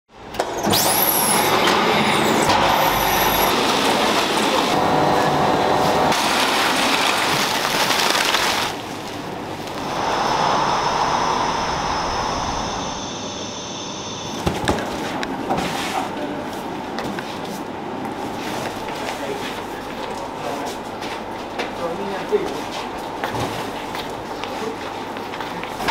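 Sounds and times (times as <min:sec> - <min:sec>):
factory hum: 0:00.1 - 0:25.9
machinery hissing loudly: 0:01.1 - 0:06.2, 0:09.2 - 0:15.5.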